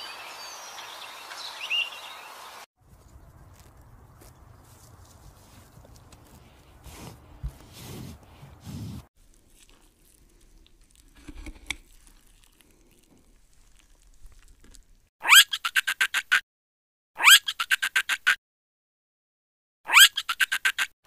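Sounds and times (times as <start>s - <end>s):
leaves rustling: 0.0s - 15.1s
animal chewing leaves: 2.8s - 15.1s
monkey squealing: 15.2s - 16.4s, 17.2s - 18.4s, 19.9s - 20.9s.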